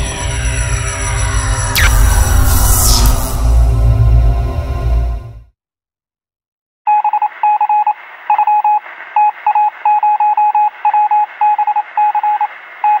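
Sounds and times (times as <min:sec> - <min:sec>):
short electronic beeps: 0:01.8 - 0:03.5.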